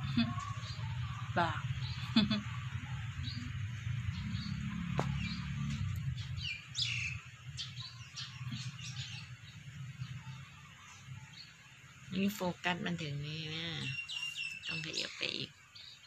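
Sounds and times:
low rumble: 0:00.0 - 0:10.6
small birds chirping: 0:00.0 - 0:16.0.

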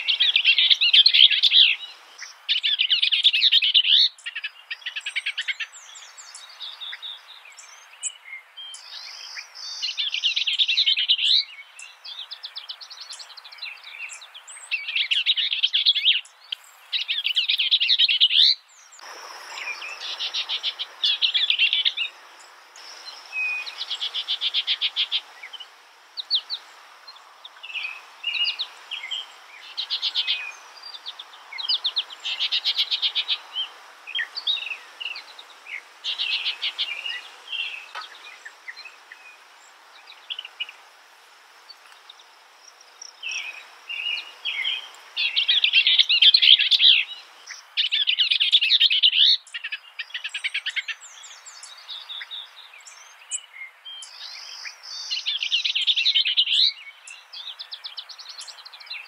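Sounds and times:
songbird trilling: 0:00.0 - 0:39.4
steady background hiss: 0:00.0 - 0:59.0.

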